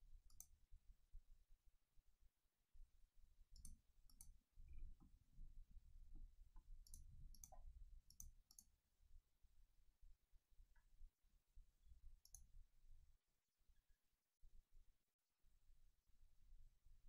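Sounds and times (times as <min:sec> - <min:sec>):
computer mouse clicks: 0:00.3 - 0:00.5, 0:03.6 - 0:04.4, 0:06.6 - 0:08.7, 0:12.2 - 0:12.5.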